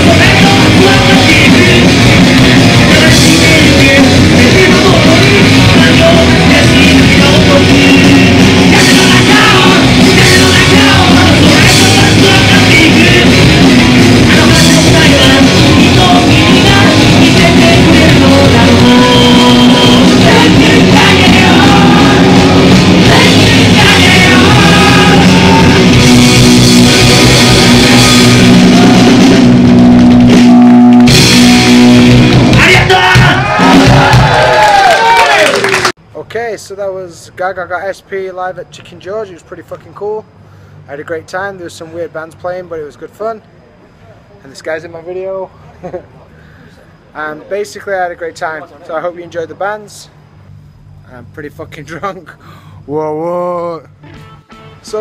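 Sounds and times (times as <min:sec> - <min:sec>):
lead vocalist singing: 0:00.0 - 0:26.2, 0:26.8 - 0:29.4
punk rock band playing live: 0:00.0 - 0:34.6.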